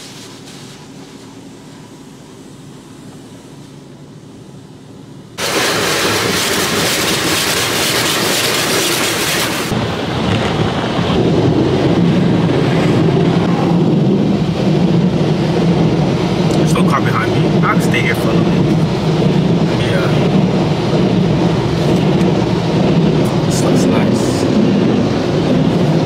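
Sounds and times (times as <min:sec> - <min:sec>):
car wash spray hissing: 0:00.0 - 0:04.6, 0:05.4 - 0:10.2
dull low rush: 0:09.1 - 0:26.0.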